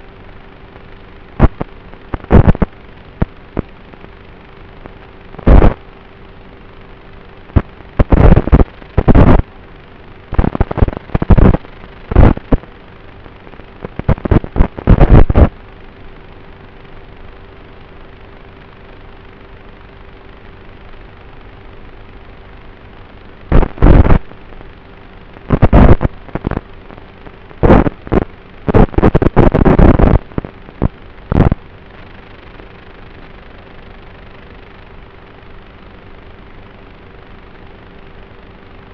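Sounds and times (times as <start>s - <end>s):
faint steady hum: 0.0s - 38.9s
steady hiss: 0.0s - 38.9s.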